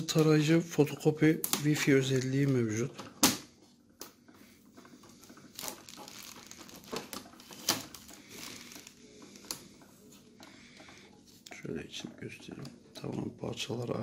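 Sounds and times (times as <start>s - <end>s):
tape peeled off plastic: 5.5s - 9.6s.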